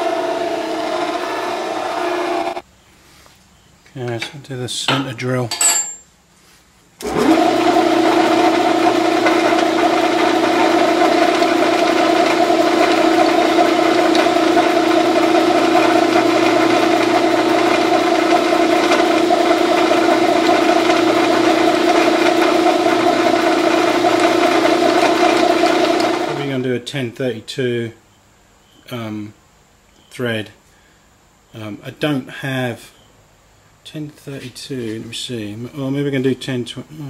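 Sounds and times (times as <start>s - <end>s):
metal lathe humming: 0.0s - 2.6s, 7.0s - 26.4s.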